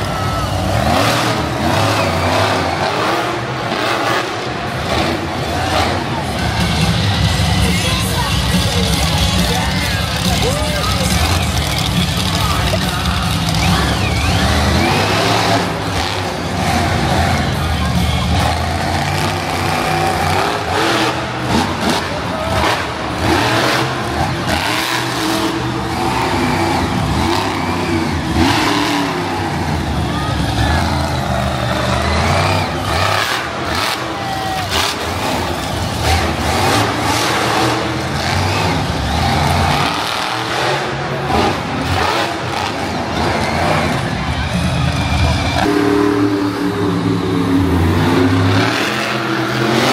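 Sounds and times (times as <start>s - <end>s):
truck engine revving: 0.0s - 49.9s.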